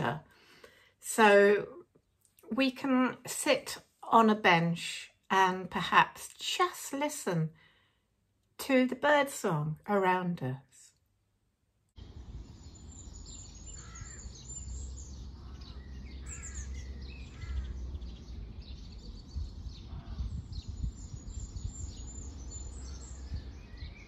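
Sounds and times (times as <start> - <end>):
low steady rumble: 12.0 - 23.5
lower bird calls: 12.0 - 24.0
small birds chirping and trilling: 12.0 - 24.0.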